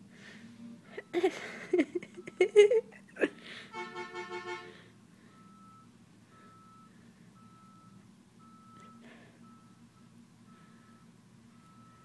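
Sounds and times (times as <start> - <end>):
truck horn short toots: 3.7 - 4.9.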